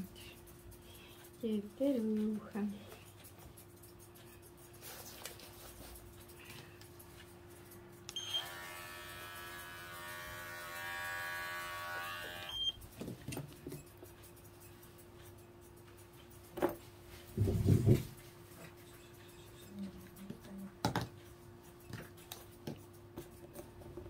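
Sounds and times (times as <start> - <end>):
electric hair trimmer running: 8.1 - 12.7.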